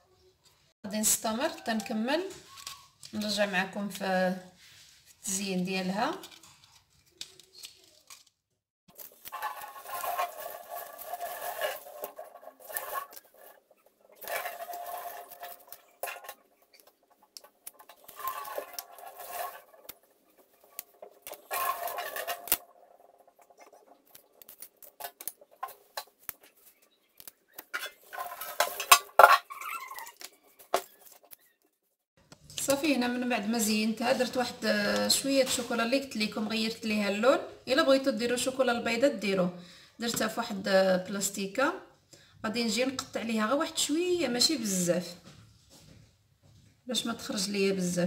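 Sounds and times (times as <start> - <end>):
knife scraping on parchment paper: 8.9 - 22.7.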